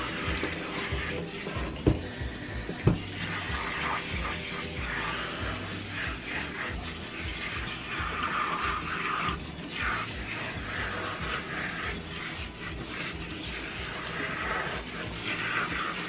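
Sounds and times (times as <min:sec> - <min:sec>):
background music: 0:00.0 - 0:16.0
sink sprayer hissing: 0:00.0 - 0:16.0.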